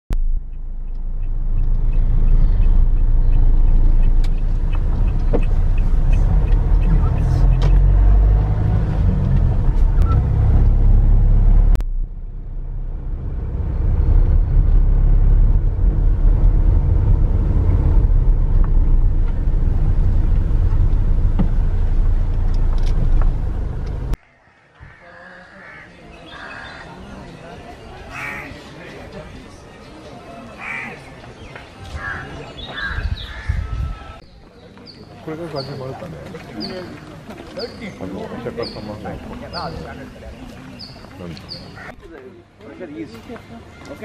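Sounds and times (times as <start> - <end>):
car interior engine and road noise: 0.1 - 24.2.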